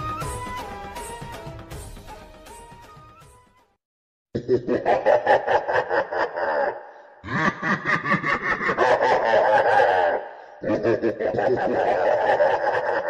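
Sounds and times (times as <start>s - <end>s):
person laughing: 4.4s - 13.0s.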